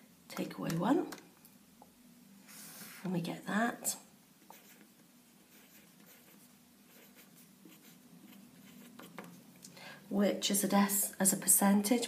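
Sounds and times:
pencil scratching on paper: 4.5 - 9.4.

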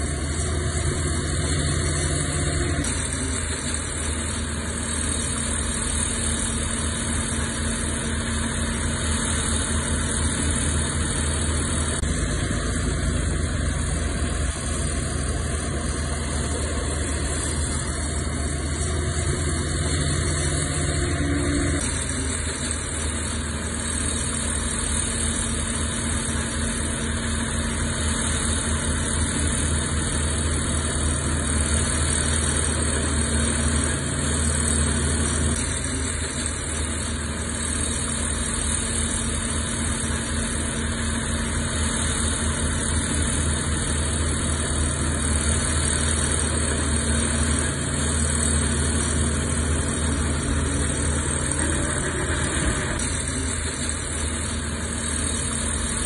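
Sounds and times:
heavy diesel engine running: 0.0 - 56.0.

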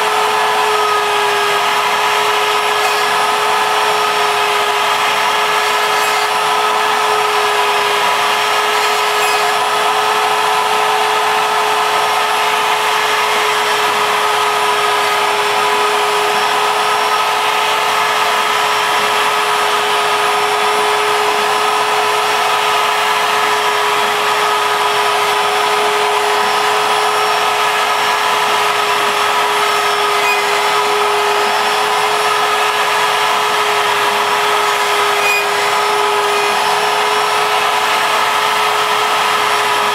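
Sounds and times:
router spindle whining: 0.0 - 39.9.

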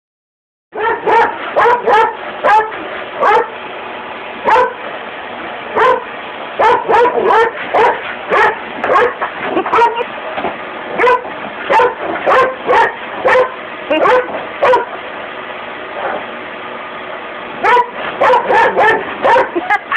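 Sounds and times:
dog barking: 0.8 - 3.6, 4.5 - 4.8, 5.8 - 10.0, 11.0 - 14.9, 17.6 - 19.6.

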